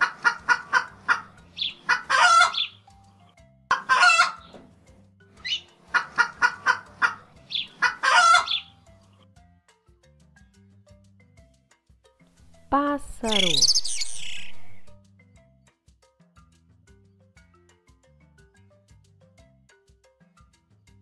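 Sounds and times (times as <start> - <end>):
hens clucking: 0.0 - 2.8, 3.7 - 4.6, 5.4 - 8.7.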